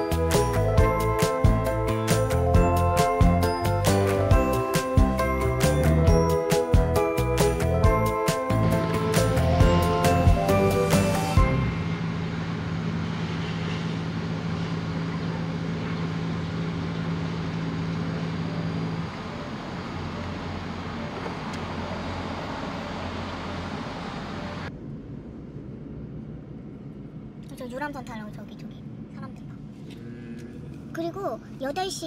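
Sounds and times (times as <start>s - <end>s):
steady low hum: 7.7s - 32.0s
distant road traffic: 8.0s - 32.0s
road noise inside moving car: 8.6s - 32.0s.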